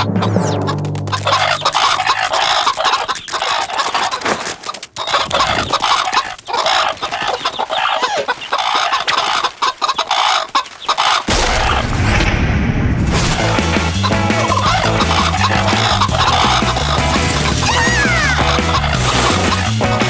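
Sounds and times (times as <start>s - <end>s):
low sound: 0.0s - 2.0s
cartoon hens clucking: 0.0s - 11.3s, 14.0s - 19.7s.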